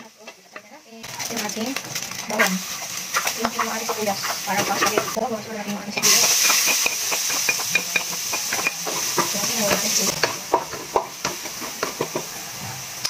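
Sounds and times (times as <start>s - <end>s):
garlic and onion sizzling in oil: 0.0s - 13.0s
wooden spatula scraping pan: 1.2s - 5.2s.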